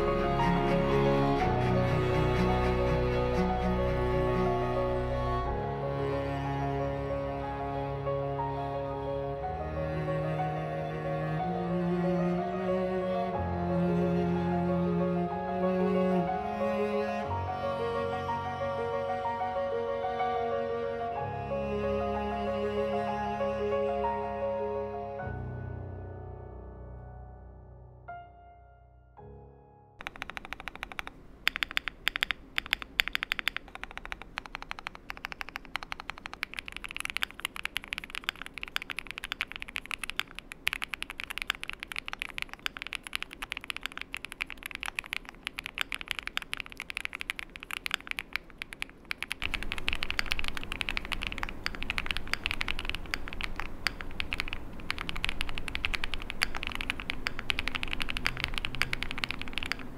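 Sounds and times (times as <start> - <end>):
fast typing on mechanical keyboard: 30.0 - 59.9.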